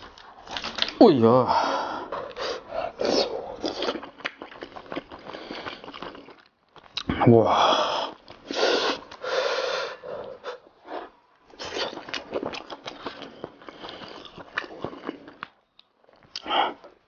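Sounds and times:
wet chewing and lip-smacking: 2.1s - 7.1s, 11.4s - 17.0s.

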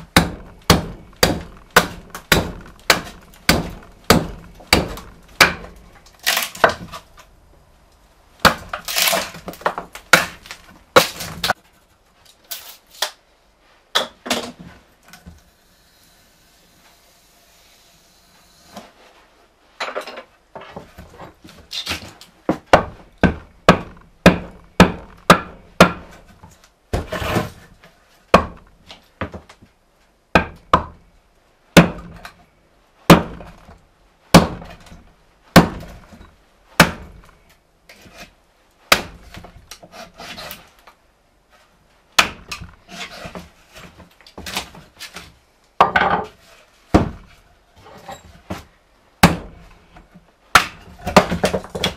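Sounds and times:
hatchet chopping wood: 0.0s - 7.1s, 8.4s - 11.6s, 21.9s - 27.6s, 28.3s - 29.4s, 30.3s - 31.0s, 31.8s - 32.3s, 33.1s - 36.2s, 36.8s - 37.4s, 38.9s - 40.6s, 42.2s - 43.4s, 46.9s - 47.3s, 49.2s - 49.6s, 50.5s - 51.9s.

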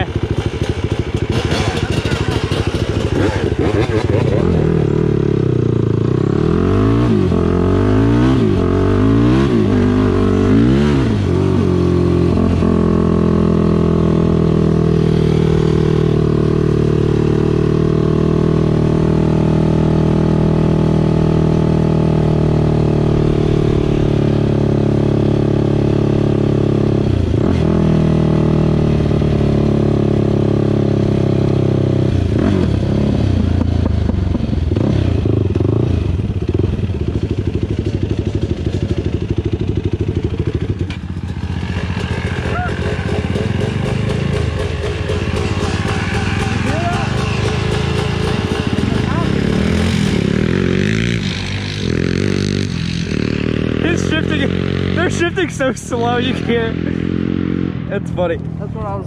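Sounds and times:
atv engine revving: 0.0s - 59.0s.

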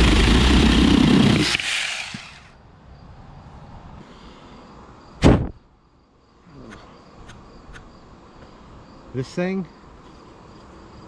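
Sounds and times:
battery chainsaw winding down: 0.0s - 2.5s
low outdoor background: 0.0s - 11.0s
loud thump: 5.2s - 5.6s.

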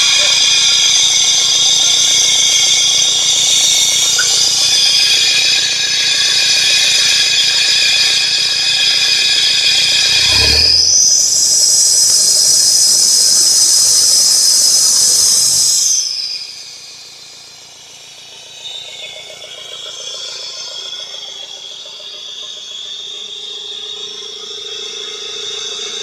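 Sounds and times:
high-pitched hissing whistle: 0.0s - 26.0s
steady high whine: 0.0s - 26.0s
car engine running: 10.0s - 11.8s.

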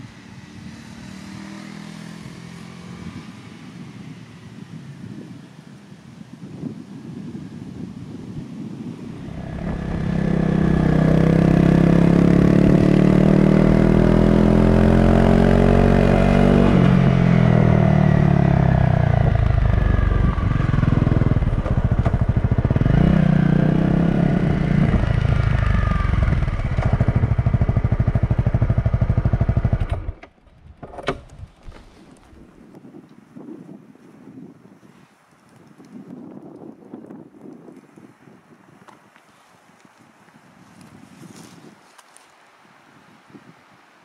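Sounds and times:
motorcycle engine revving: 0.0s - 3.5s, 9.1s - 30.3s.

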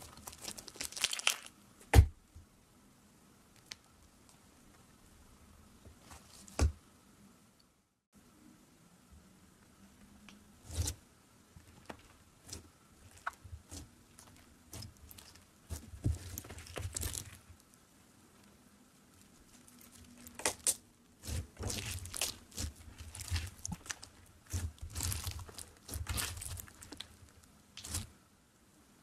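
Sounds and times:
crunchy slime crackling: 0.0s - 1.6s, 11.8s - 17.5s, 19.2s - 28.1s.

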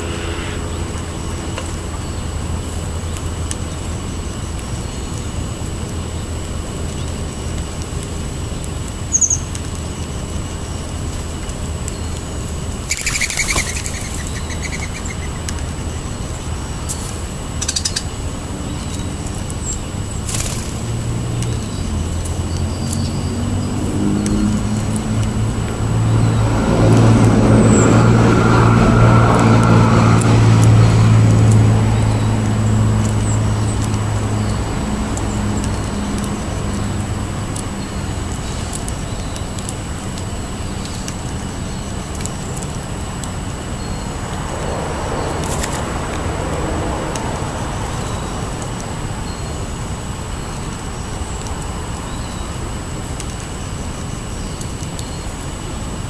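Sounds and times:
passing vehicle engine and tyres: 0.0s - 4.2s, 20.1s - 39.0s, 43.0s - 53.1s
birds chirping: 0.0s - 46.2s
bird wingbeats: 12.9s - 15.7s, 18.9s - 21.7s.

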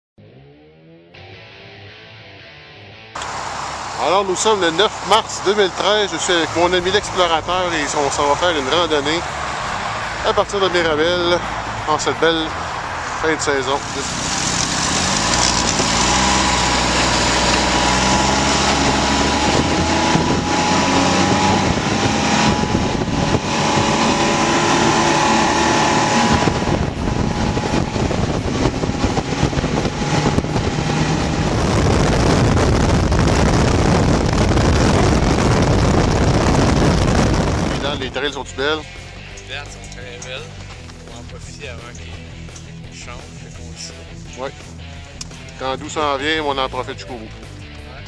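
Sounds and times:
snowmobile engine accelerating: 3.2s - 38.7s
wind and track rushing: 3.2s - 39.3s.

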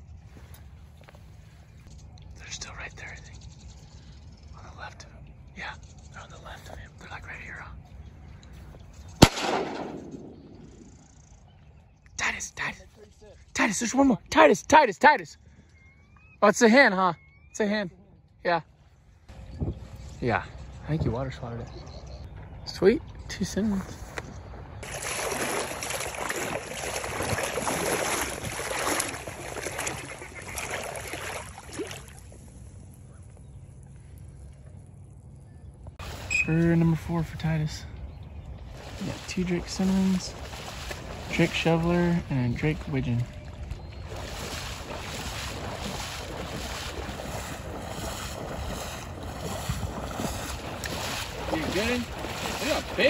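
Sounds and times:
wading through shallow water: 0.0s - 2.2s, 23.6s - 53.0s.

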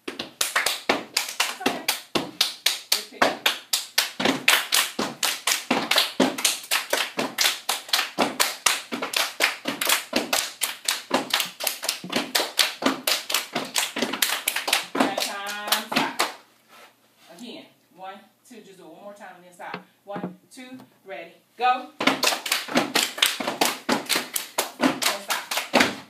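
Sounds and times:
hand claps: 0.3s - 14.9s.

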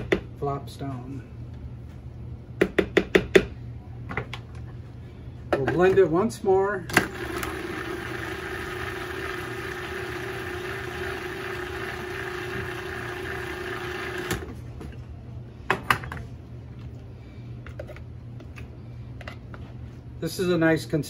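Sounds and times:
food processor motor humming: 7.0s - 14.6s.

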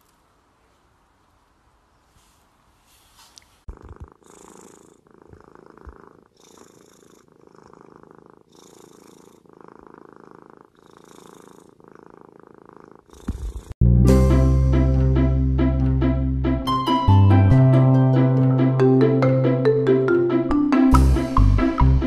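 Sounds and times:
kitten purring: 1.6s - 13.8s.

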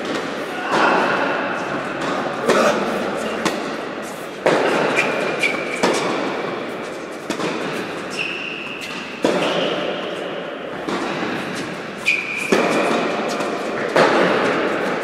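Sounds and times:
racquet hitting tennis ball: 1.8s - 15.0s
shoe squeaks on hard court: 8.1s - 9.7s, 12.0s - 12.9s.

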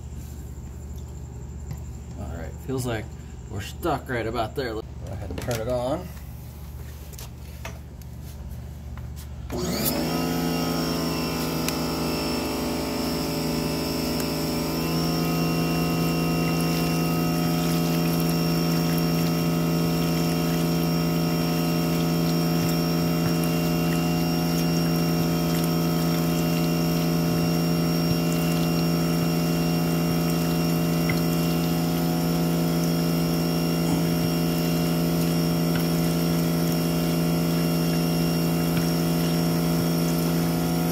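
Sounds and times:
pressure washer humming: 9.4s - 40.9s
water splashing into plastic tub: 9.9s - 40.9s.

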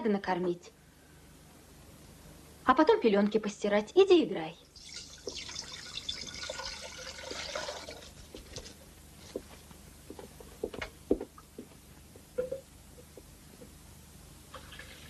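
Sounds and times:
milk pouring into a pan: 4.8s - 8.2s.

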